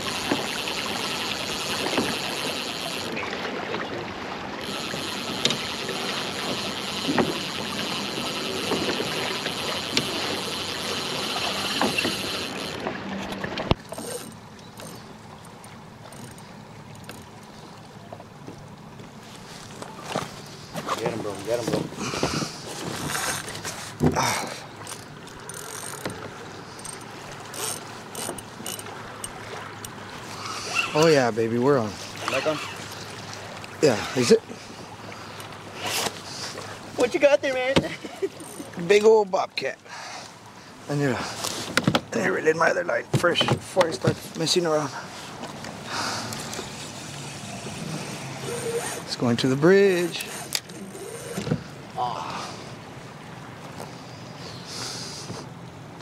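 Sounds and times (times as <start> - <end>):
fishing reel cranking: 0.0 - 3.2, 4.6 - 12.8, 13.9 - 15.1, 16.0 - 17.3, 22.9 - 23.6, 24.8 - 31.1, 32.2 - 32.9, 38.3 - 38.7, 45.9 - 49.2, 49.8 - 51.5
water rushing: 0.0 - 56.0
wind: 0.0 - 56.0.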